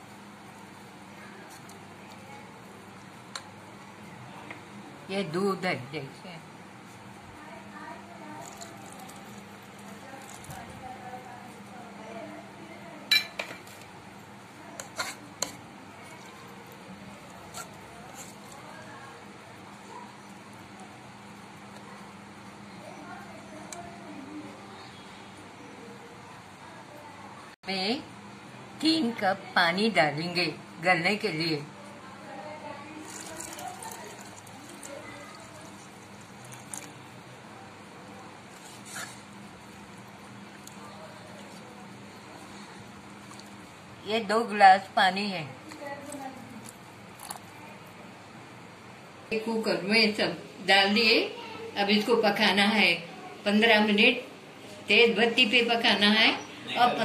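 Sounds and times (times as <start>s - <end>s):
spoon stirring wet mixture: 0.4s - 4.7s, 6.8s - 24.3s, 32.3s - 48.4s
spoon clinking against metal pot: 13.1s - 13.6s
water pouring into a pot: 33.0s - 37.0s.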